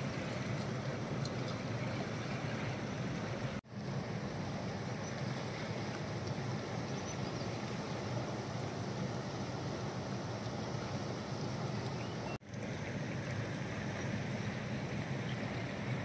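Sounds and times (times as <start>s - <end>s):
river water rushing over rocks: 0.0s - 16.0s.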